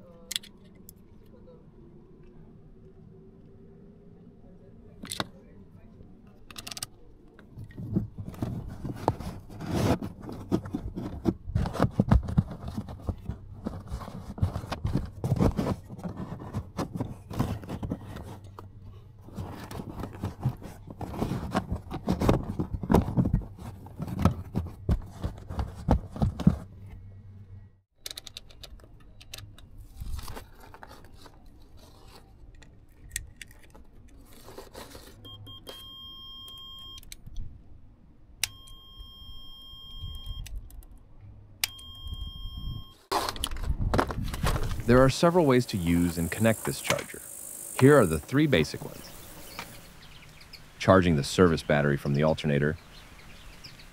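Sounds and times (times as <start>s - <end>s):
low steady hum: 0.0s - 27.8s.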